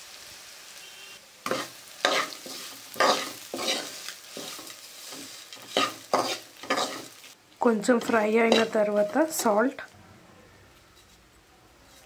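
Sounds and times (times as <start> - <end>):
oil sizzling: 0.0 - 9.9
spoon scraping steel pan: 1.5 - 7.1, 8.0 - 9.4, 10.9 - 12.0.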